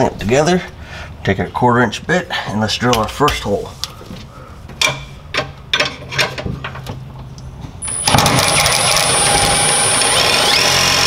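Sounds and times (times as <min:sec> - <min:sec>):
electric drill drilling: 0:07.8 - 0:11.0.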